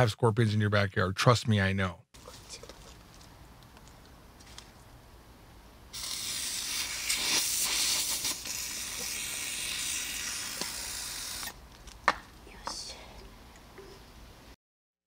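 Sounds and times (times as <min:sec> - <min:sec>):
steady hiss: 0:05.9 - 0:11.6.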